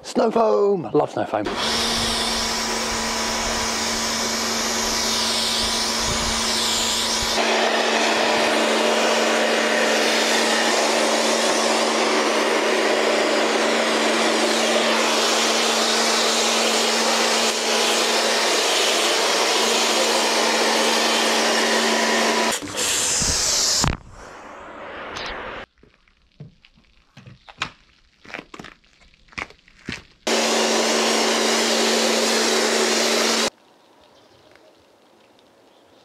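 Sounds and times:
pressure washer pump hum: 0:01.5 - 0:23.8, 0:30.3 - 0:33.5.

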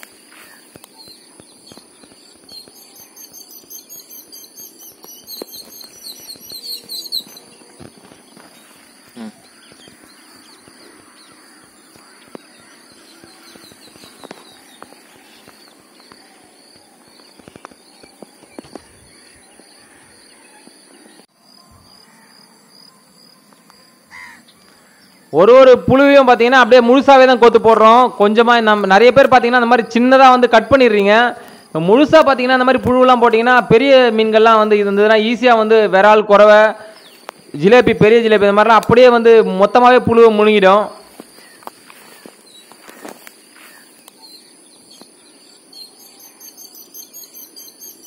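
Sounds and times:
high-pitched insect drone: 0:00.0 - 0:25.0
birds trilling and chirping: 0:00.0 - 0:35.9, 0:36.6 - 0:48.0.

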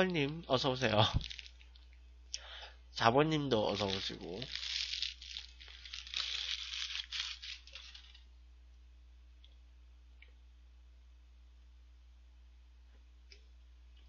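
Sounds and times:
paper wrapper crumpling: 0:00.0 - 0:01.8, 0:03.6 - 0:08.3.

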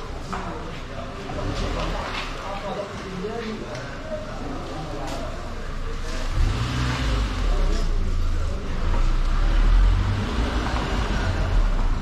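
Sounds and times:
car engine driving past: 0:06.0 - 0:12.0.

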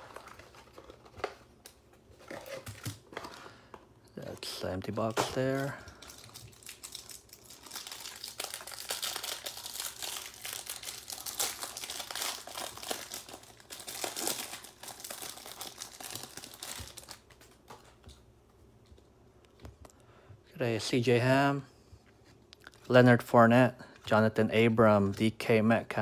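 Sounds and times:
plastic wrapper crinkling and tearing: 0:04.2 - 0:18.0.

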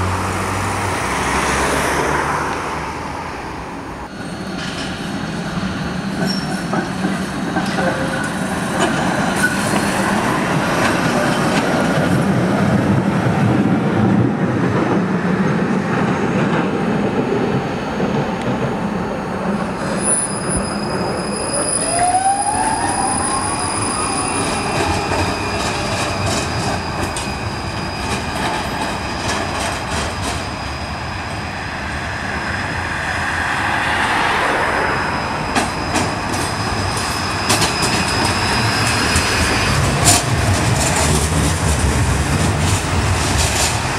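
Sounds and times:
trams running on track: 0:00.0 - 0:43.9
sharp clicks of passing tram: 0:00.6 - 0:03.0, 0:06.1 - 0:20.7, 0:24.4 - 0:30.5, 0:33.5 - 0:43.9
tram wheel squeal: 0:04.1 - 0:12.7, 0:16.6 - 0:43.9.

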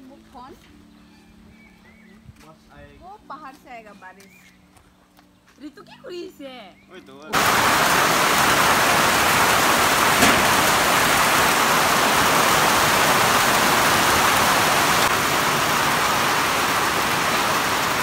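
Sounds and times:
heavy rain on metal roof: 0:07.3 - 0:18.0.

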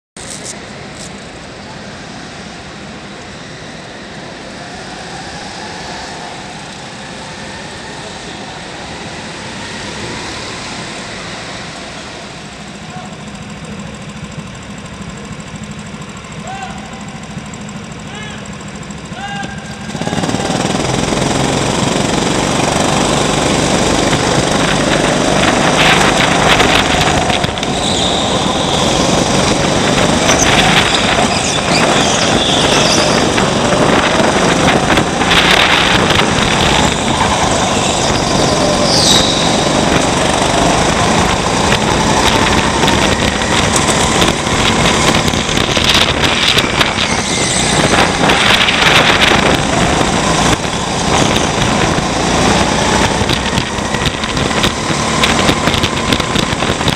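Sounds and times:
go-kart engines: 0:00.2 - 0:56.9.

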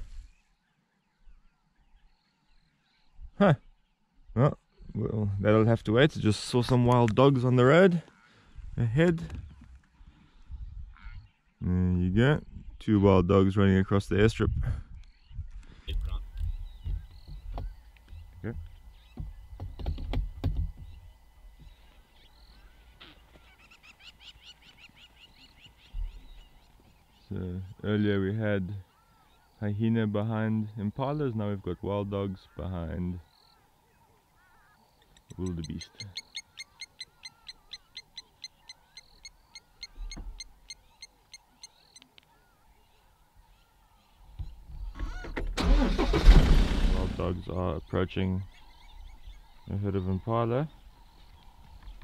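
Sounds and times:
faint birds twittering: 0:00.0 - 0:52.0
dull low thump: 0:16.0 - 0:17.8, 0:18.4 - 0:21.0
bird calling sharp notes: 0:32.5 - 0:46.3
rapid high chirps: 0:35.3 - 0:42.1.

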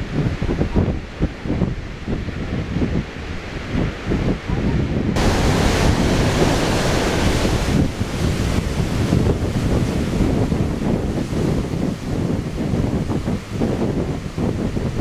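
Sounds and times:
wind buffeting microphone: 0:00.0 - 0:15.0
waterfall roaring: 0:05.2 - 0:15.0.

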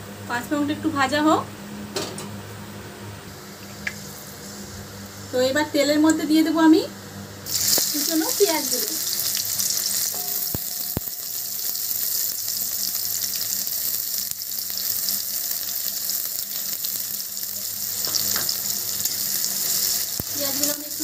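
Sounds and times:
onions sizzling in oil: 0:07.4 - 0:21.0.

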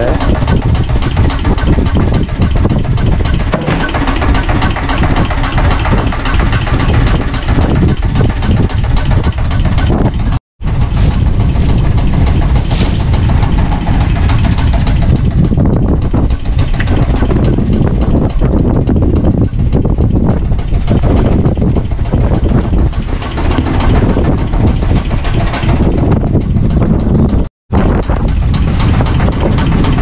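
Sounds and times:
boat engine idling: 0:00.0 - 0:30.0
wind on microphone: 0:00.0 - 0:30.0.

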